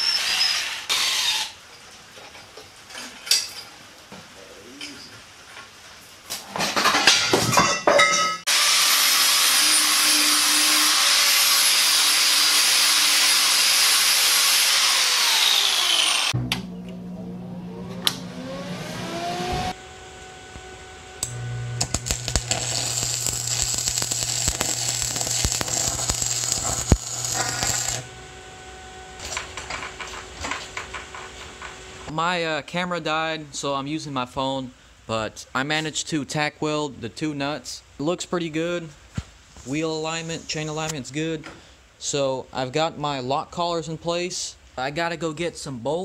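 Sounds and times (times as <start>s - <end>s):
power tool winding down: 8.5s - 16.4s, 21.2s - 28.1s
welder humming: 8.5s - 32.1s
welding arc crackling: 20.5s - 28.3s, 29.1s - 31.2s.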